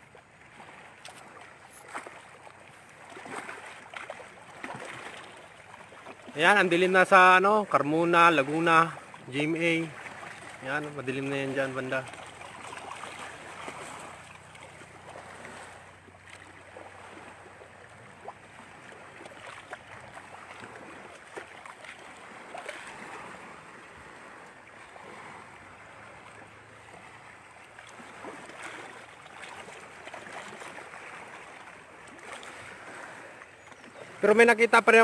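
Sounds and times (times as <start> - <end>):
small waves lapping: 0.0 - 35.0
wind: 0.0 - 35.0.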